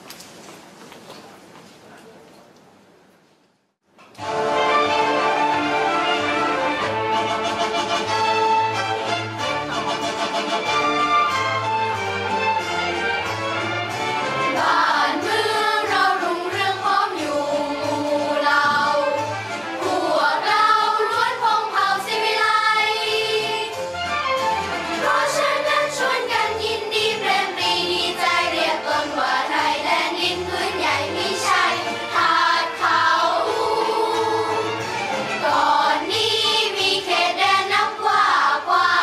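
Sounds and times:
low instrumental accompaniment: 0:04.2 - 0:39.0
children's choir singing: 0:14.2 - 0:23.9, 0:24.8 - 0:39.0.

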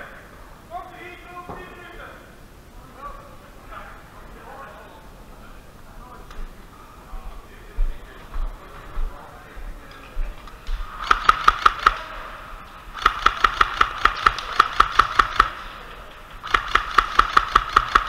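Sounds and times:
airsoft rifle rapid shots: 0:11.0 - 0:12.1, 0:12.9 - 0:15.6, 0:16.4 - 0:18.0.

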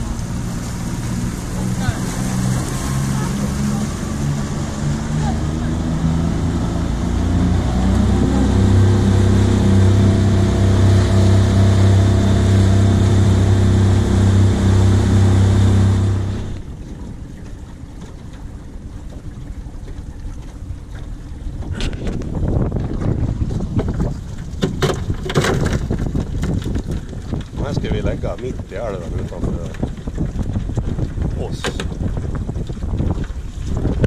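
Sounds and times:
motorboat engine running: 0:00.0 - 0:34.0
water rushing past hull: 0:00.0 - 0:34.0
wind noise: 0:21.5 - 0:34.0.

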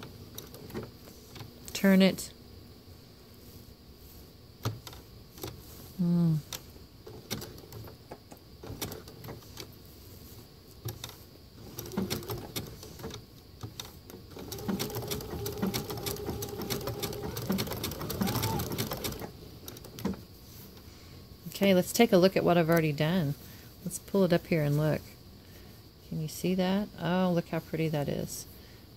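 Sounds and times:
person humming mm: 0:06.0 - 0:06.5
sewing machine needle clicks: 0:10.8 - 0:20.2
sewing machine motor humming: 0:11.6 - 0:12.9, 0:14.3 - 0:19.8.

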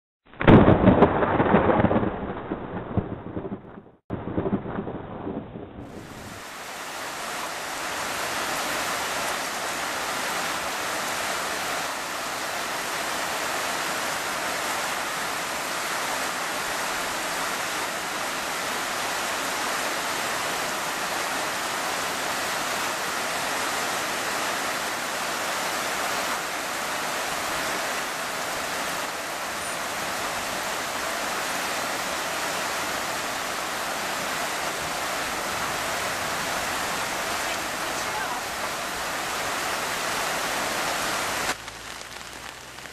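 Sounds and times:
heavy rain falling: 0:00.4 - 0:42.9.

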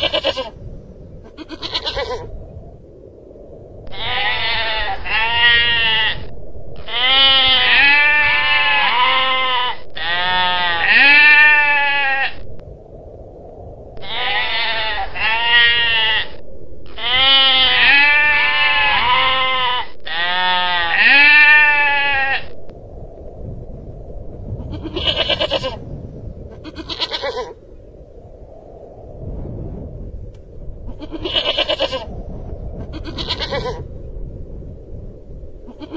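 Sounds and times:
goral bleating: 0:00.0 - 0:00.6, 0:01.3 - 0:02.3, 0:03.9 - 0:12.4, 0:14.0 - 0:22.6, 0:24.6 - 0:25.8, 0:26.5 - 0:27.6, 0:30.9 - 0:32.1, 0:32.8 - 0:33.9, 0:35.7 - 0:35.9
quavering bleats: 0:00.0 - 0:00.6, 0:01.3 - 0:02.3, 0:03.9 - 0:12.4, 0:14.0 - 0:22.6, 0:24.6 - 0:25.8, 0:26.6 - 0:27.6, 0:30.9 - 0:32.1, 0:32.9 - 0:33.8, 0:35.7 - 0:35.9.

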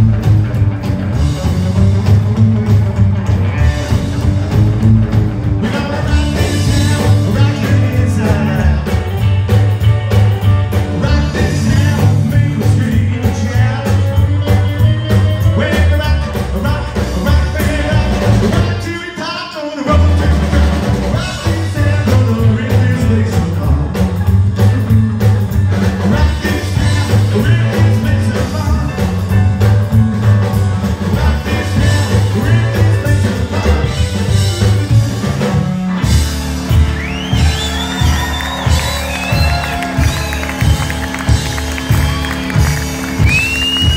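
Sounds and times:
electric guitar: 0:00.0 - 0:18.9
upright double bass: 0:00.0 - 0:19.0, 0:19.9 - 0:43.9
drum kit: 0:00.0 - 0:43.9
man singing: 0:05.6 - 0:09.3, 0:10.9 - 0:24.9, 0:25.8 - 0:29.4, 0:30.9 - 0:34.2.

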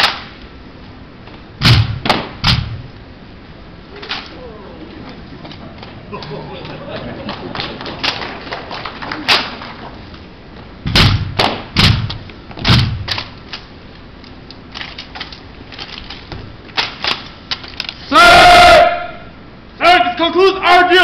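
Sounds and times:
rifles slapped and struck: 0:00.0 - 0:00.4, 0:10.9 - 0:13.6, 0:14.7 - 0:17.8
person shouting: 0:03.9 - 0:05.1, 0:18.1 - 0:21.0.

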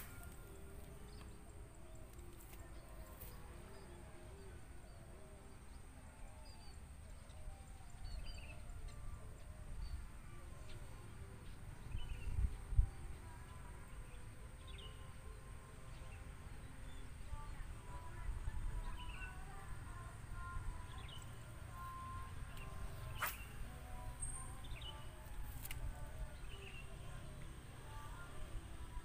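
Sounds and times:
small birds chirping: 0:20.4 - 0:28.3
sharp click: 0:22.6 - 0:23.5.

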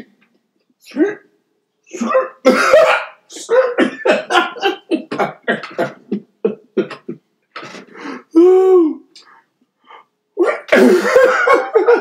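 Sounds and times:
man laughing hard: 0:02.5 - 0:07.2, 0:10.4 - 0:12.0.

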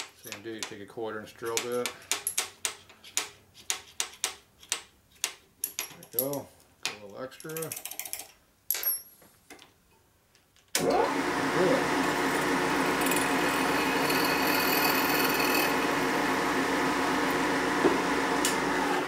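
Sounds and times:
drill bit drilling aluminium: 0:10.8 - 0:18.9
milling machine spindle running: 0:10.8 - 0:19.0.

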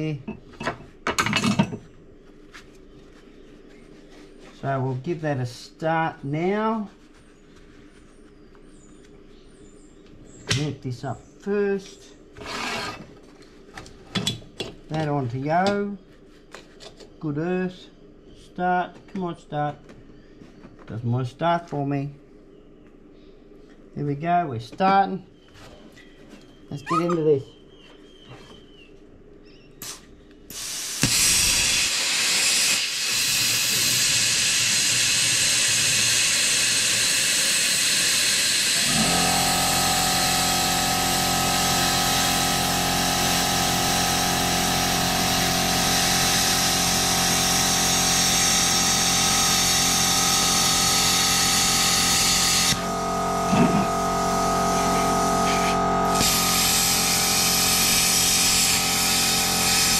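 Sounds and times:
steady multi-pitched hum: 0:29.0 - 0:59.9
plasma cutter hissing: 0:29.8 - 0:52.8, 0:53.4 - 0:59.9.

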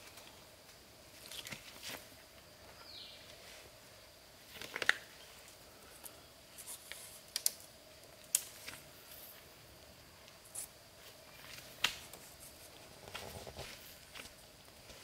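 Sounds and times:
bamboo strips clicking and knocking: 0:04.5 - 0:05.2, 0:06.0 - 0:08.9, 0:11.4 - 0:15.0.

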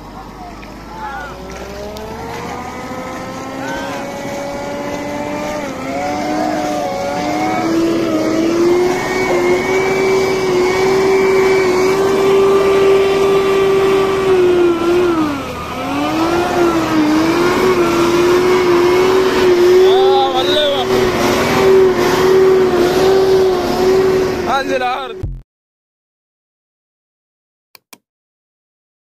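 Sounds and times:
water churning: 0:00.0 - 0:24.8
diesel truck engine under load: 0:00.0 - 0:25.2.

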